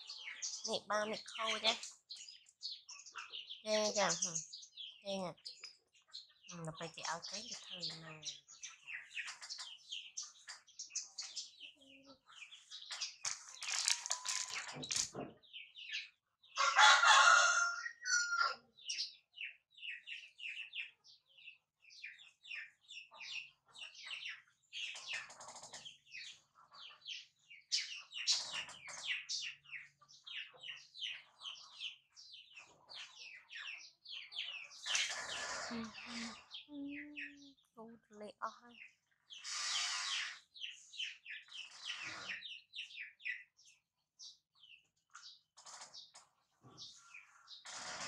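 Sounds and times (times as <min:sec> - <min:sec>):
small birds chirping: 0:00.0 - 0:48.0
rustling: 0:13.2 - 0:15.2.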